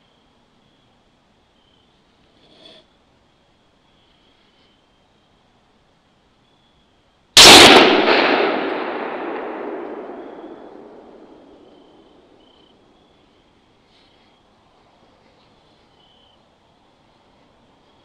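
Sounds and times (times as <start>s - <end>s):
rifle shot with long echo: 7.4s - 12.4s.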